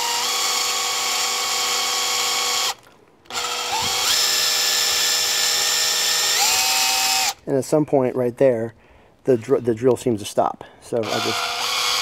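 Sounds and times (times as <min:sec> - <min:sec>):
cordless drill motor whine: 0:00.0 - 0:07.4, 0:11.0 - 0:12.0.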